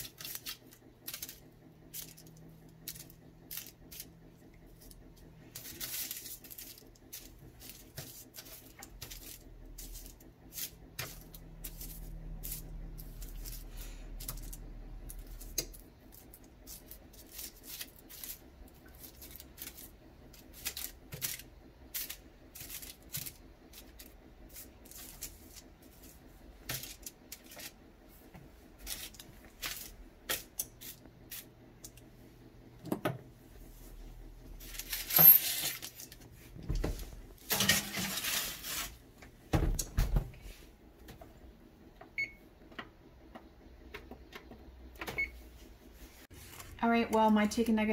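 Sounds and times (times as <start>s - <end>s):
foil crinkling: 0.0s - 4.1s, 4.8s - 27.8s, 28.8s - 31.5s, 34.6s - 36.2s, 37.5s - 39.0s.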